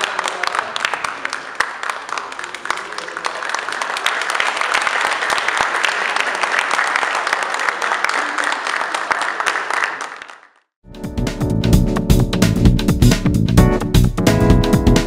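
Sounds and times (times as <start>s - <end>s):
audience applauding: 0.0s - 10.7s
music: 10.8s - 15.0s.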